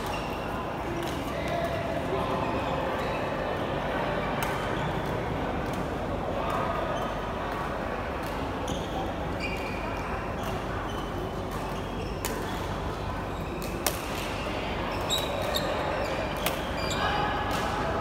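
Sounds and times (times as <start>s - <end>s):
shoes squeaking on court floor: 0.0s - 3.5s, 8.4s - 17.6s
murmur of voices: 0.0s - 18.0s.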